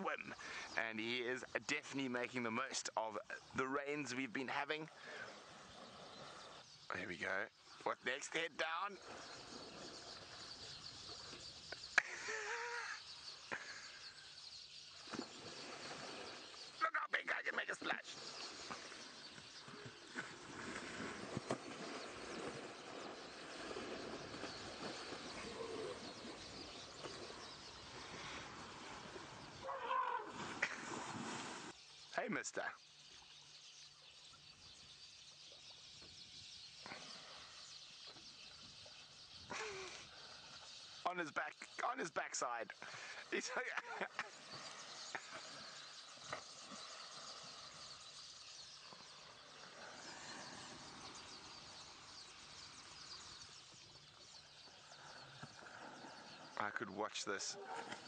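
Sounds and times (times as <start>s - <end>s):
birds chirping: 0.0s - 58.0s
elephant trunk sloshing water: 19.7s - 27.3s.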